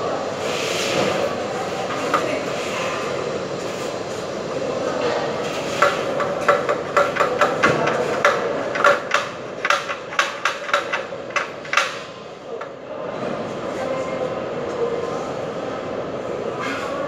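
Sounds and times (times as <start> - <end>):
steady background hum: 0.0 - 17.0
hammer tapping on wall: 5.8 - 12.0.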